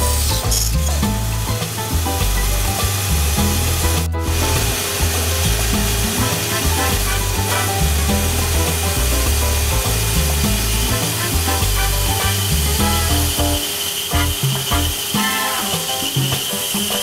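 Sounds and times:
background music: 0:00.0 - 0:17.0
bandsaw rasping through wood: 0:10.0 - 0:15.4.

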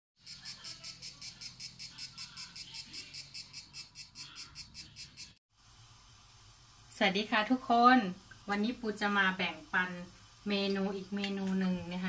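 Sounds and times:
insect-like chirping: 0:00.2 - 0:05.4.

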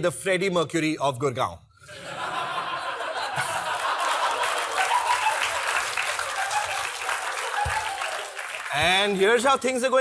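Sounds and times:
audience laughter: 0:01.9 - 0:08.1
audience applauding: 0:03.4 - 0:09.5.

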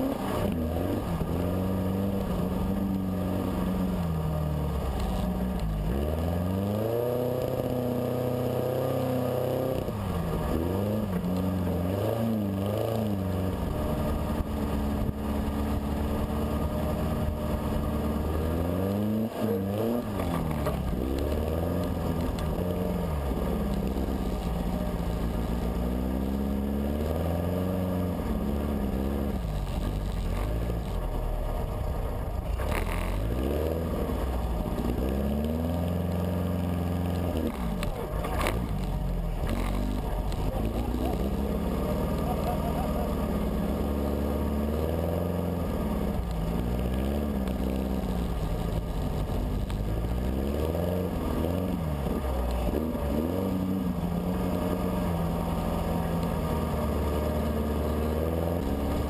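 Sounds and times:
dune buggy engine revving: 0:00.0 - 0:59.0.

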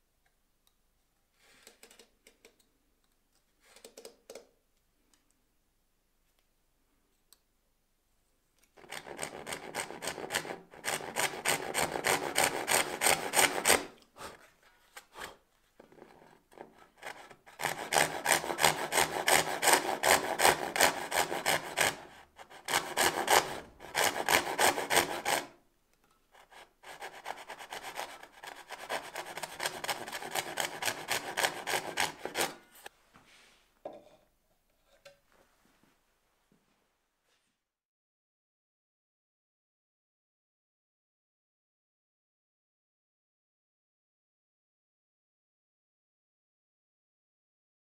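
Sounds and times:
handsaw cutting wood: 0:08.8 - 0:15.4, 0:16.0 - 0:25.6, 0:26.4 - 0:32.9.

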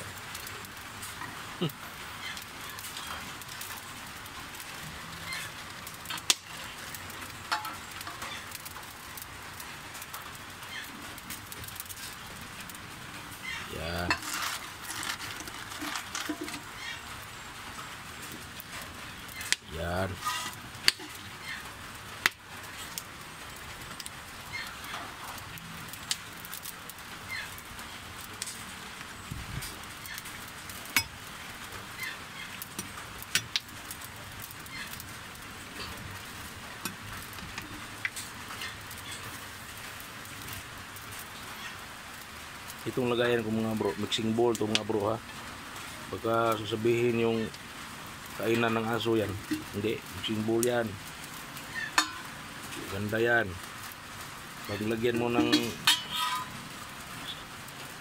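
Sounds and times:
wood fire crackling: 0:00.0 - 0:58.0.

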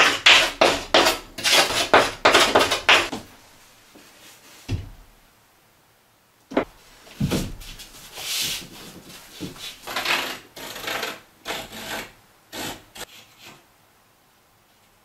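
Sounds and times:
board knocking against wall framing: 0:00.0 - 0:03.3, 0:04.7 - 0:05.1, 0:06.5 - 0:07.7
board scraping against studs: 0:00.0 - 0:03.3.

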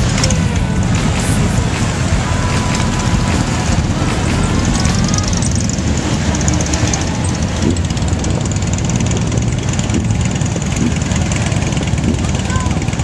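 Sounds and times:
motorcycle engine running: 0:00.0 - 0:13.0
other motorcycles riding: 0:00.0 - 0:13.0.

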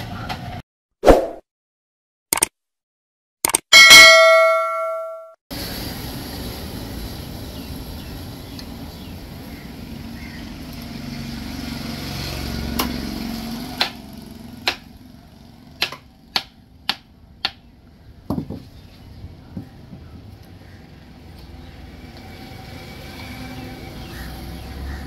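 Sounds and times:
road traffic rumble: 0:05.5 - 0:25.0.

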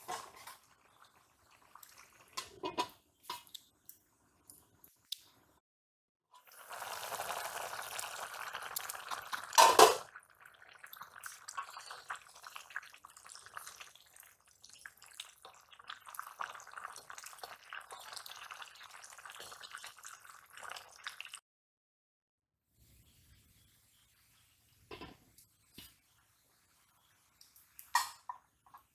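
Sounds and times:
greens hissing and bubbling in wok: 0:06.4 - 0:21.4
lid clattering: 0:09.6 - 0:10.1.

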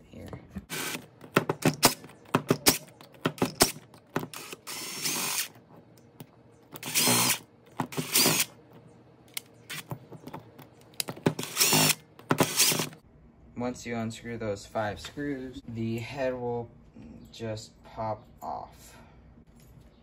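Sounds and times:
cordless driver spinning: 0:00.7 - 0:05.6, 0:06.8 - 0:08.5, 0:11.3 - 0:13.0.

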